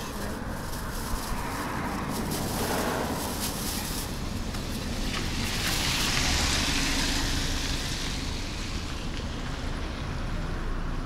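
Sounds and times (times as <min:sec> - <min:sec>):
tyre hiss on wet asphalt: 0:00.0 - 0:09.8
wind rumble on microphone: 0:00.0 - 0:10.2.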